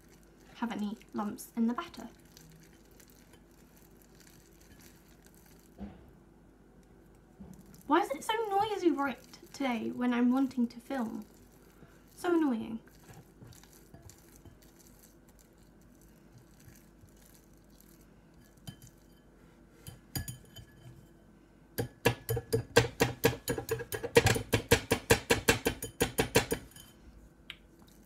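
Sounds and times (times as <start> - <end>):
utensil clinking against mixing bowl: 18.4 - 21.0, 21.8 - 27.0.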